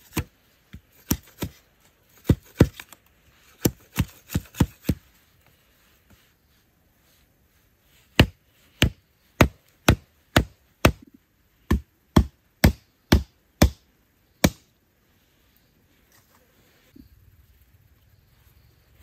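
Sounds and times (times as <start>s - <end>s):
machete chopping wood: 0.0s - 0.3s, 1.0s - 1.6s, 2.2s - 2.9s, 3.6s - 5.0s, 8.2s - 11.0s, 11.7s - 13.8s.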